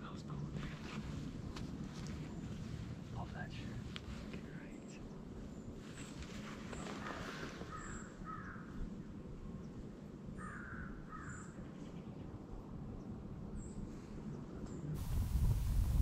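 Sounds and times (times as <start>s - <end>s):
quiet woodland background: 0.0s - 16.0s
crow cawing: 7.7s - 8.7s, 10.4s - 11.5s.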